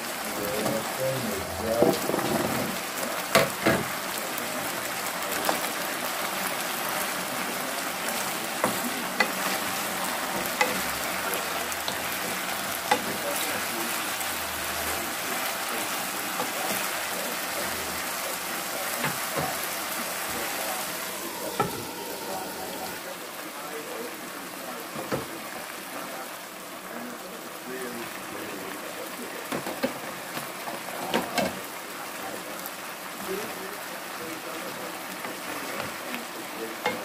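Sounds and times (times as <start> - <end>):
pork and vegetables sizzling: 0.0 - 37.0
wooden spatula scraping: 7.5 - 23.0.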